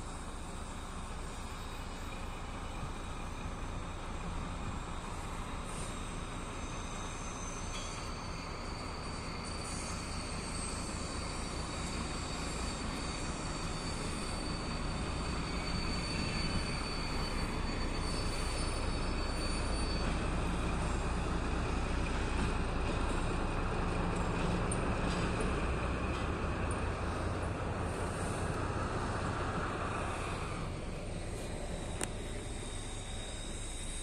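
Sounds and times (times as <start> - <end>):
diesel locomotive engine droning: 0.0 - 34.0
high-pitched wheel squeal: 0.0 - 34.0.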